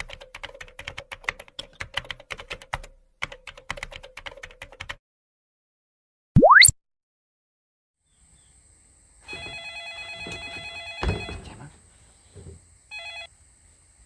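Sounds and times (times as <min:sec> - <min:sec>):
mobile phone ringtone: 0:09.4 - 0:11.3, 0:12.9 - 0:13.3.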